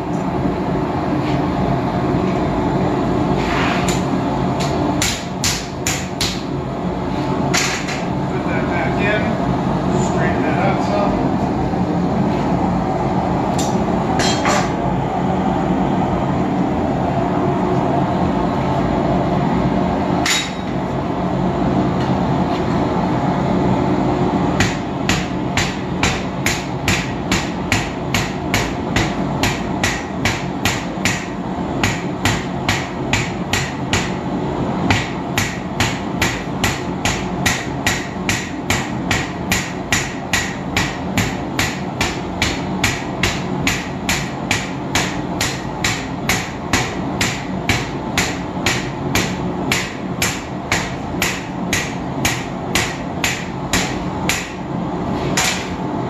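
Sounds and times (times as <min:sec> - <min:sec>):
forge burner rushing: 0:00.0 - 0:56.0
hammer striking steel on anvil: 0:04.6 - 0:06.5, 0:13.6 - 0:14.8, 0:20.2 - 0:20.8, 0:24.6 - 0:34.2, 0:34.9 - 0:54.6, 0:55.4 - 0:55.8.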